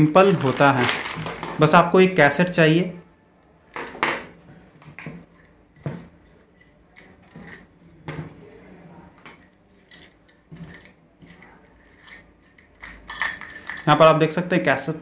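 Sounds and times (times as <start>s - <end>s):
metal sprockets clinking: 9.9s - 14.0s.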